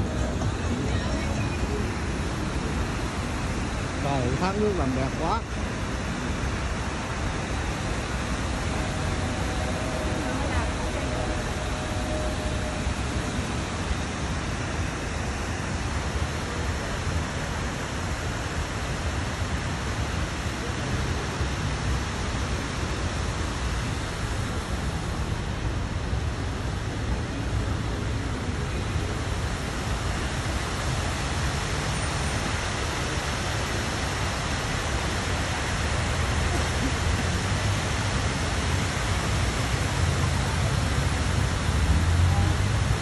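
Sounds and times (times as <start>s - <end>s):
street traffic: 0.0s - 43.0s
waterfall rushing: 0.0s - 43.0s.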